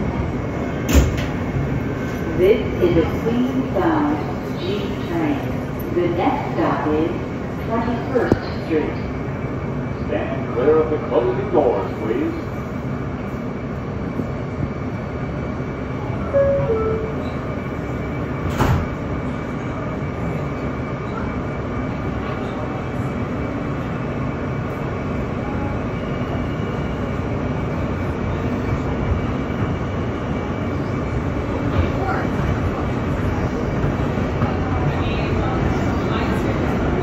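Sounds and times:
subway train running in tunnel: 0.0 - 37.0.

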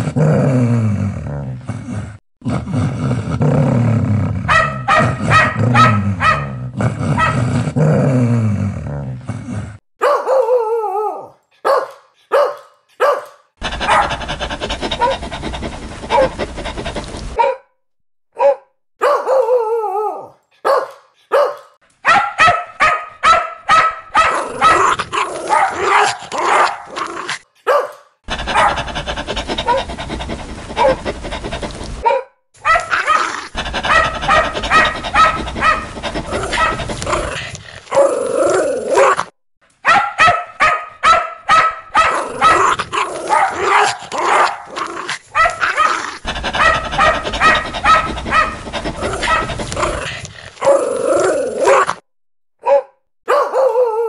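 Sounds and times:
dog barking fiercely: 4.5 - 7.5, 10.0 - 10.5, 11.6 - 17.6, 18.4 - 19.5, 20.6 - 52.0, 52.7 - 53.7.

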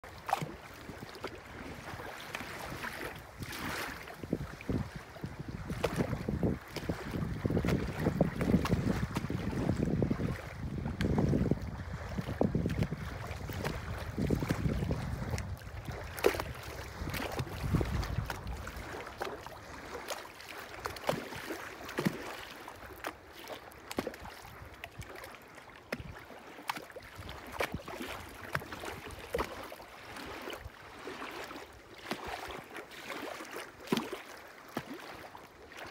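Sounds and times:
small waves lapping: 0.0 - 35.9
wind buffeting microphone: 0.8 - 19.9.

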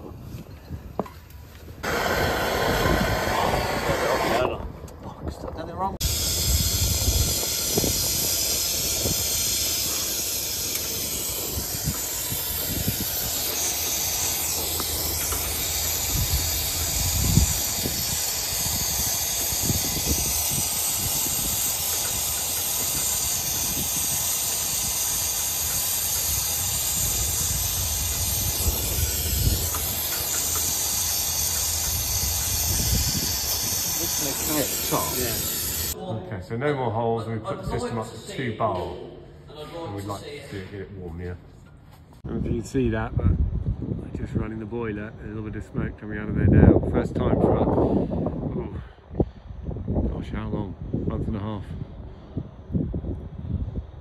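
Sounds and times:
torch flame hissing: 1.8 - 4.7, 6.0 - 36.0.

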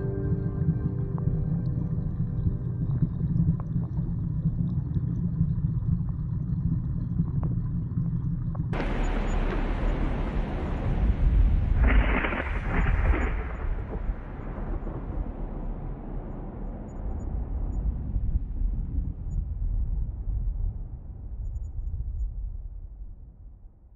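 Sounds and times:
muffled underwater rumble: 0.0 - 23.9
rushing water: 8.8 - 16.5.

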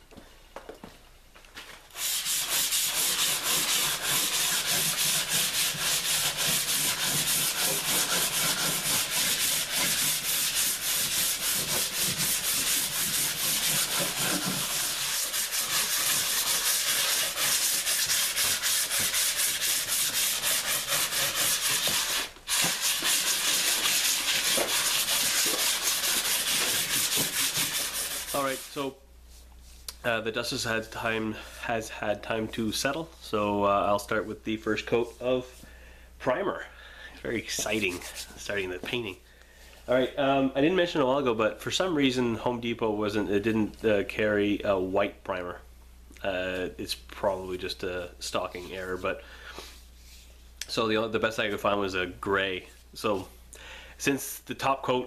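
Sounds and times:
sanding sponge scrubbing: 1.9 - 28.8, 37.5 - 38.4.

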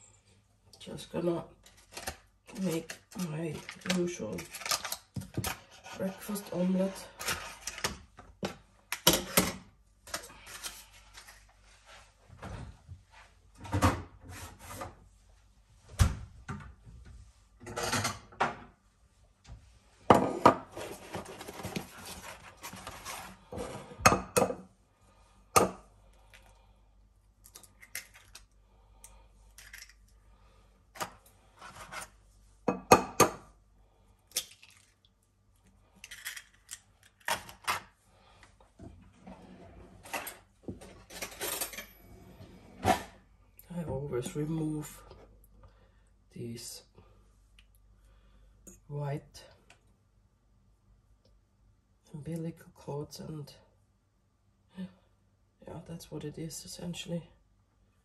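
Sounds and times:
packaging rustling: 1.6 - 5.4.

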